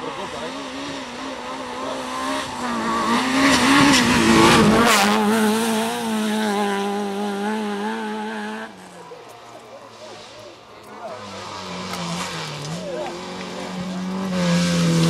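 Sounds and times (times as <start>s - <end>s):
rally car engine at full throttle: 0.0s - 15.0s.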